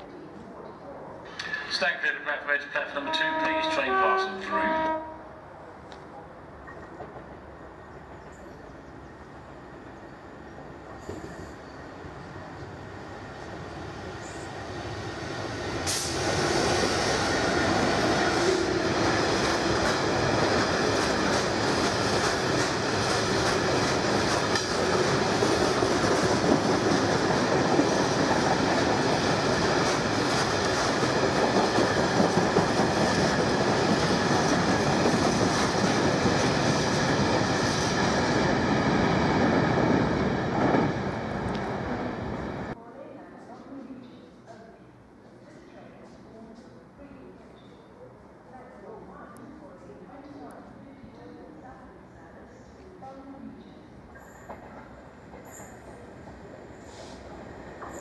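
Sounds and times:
diesel locomotive passing: 1.3s - 42.8s.

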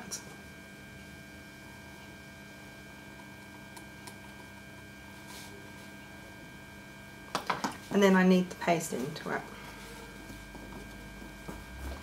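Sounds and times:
low electrical hum: 0.0s - 12.0s.

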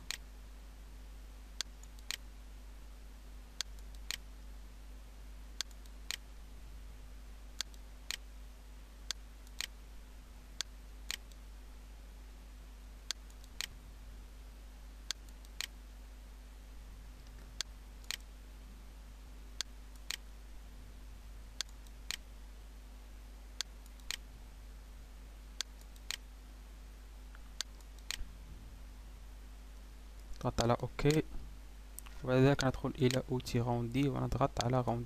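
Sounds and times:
low electrical hum: 0.0s - 35.0s
computer mouse clicking: 1.6s - 2.2s, 3.6s - 4.3s, 7.6s - 8.2s, 15.1s - 15.8s, 17.2s - 18.3s, 19.6s - 20.3s, 23.6s - 24.2s, 27.6s - 28.3s.

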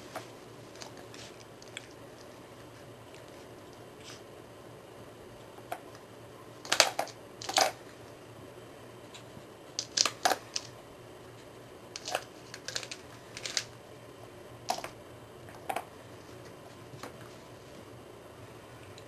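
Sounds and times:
plastic toy clicking and clattering: 6.7s - 7.8s, 9.8s - 10.7s, 12.0s - 13.7s.

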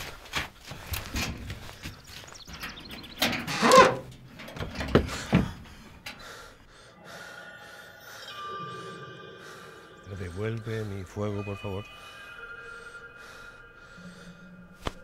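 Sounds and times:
scuffling knocks and thumps: 3.7s - 5.8s.

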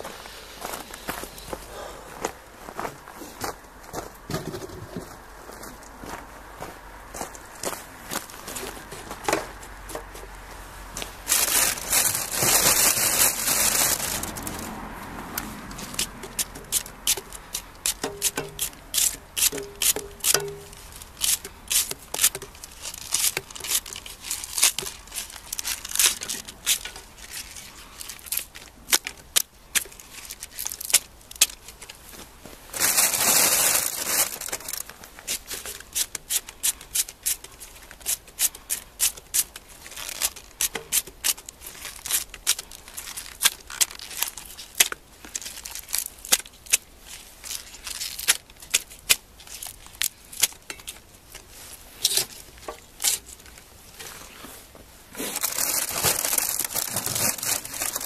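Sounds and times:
knife cutting green onion: 15.9s - 22.4s.

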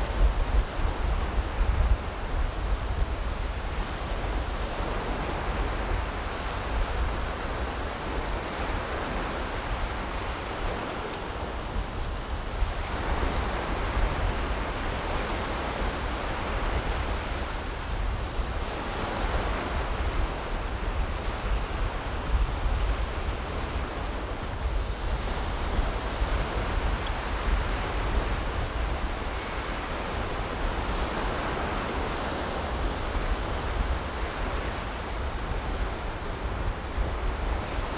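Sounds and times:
surf washing onto beach: 0.0s - 37.9s
wind buffeting microphone: 0.0s - 37.9s.

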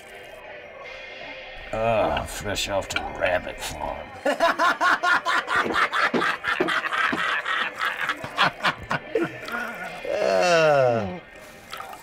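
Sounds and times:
men laughing hard: 4.2s - 9.8s.

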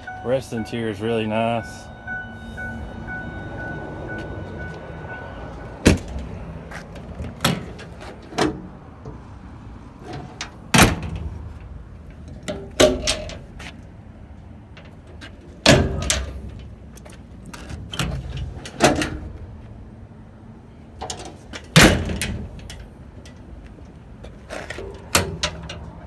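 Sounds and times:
truck doors knocking: 5.8s - 6.3s
metal latches clacking: 12.1s - 13.5s, 24.5s - 26.0s.

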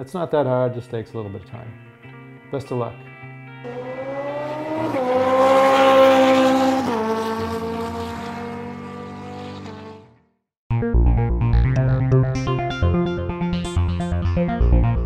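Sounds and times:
motorcycle engine revving past: 3.6s - 10.2s.

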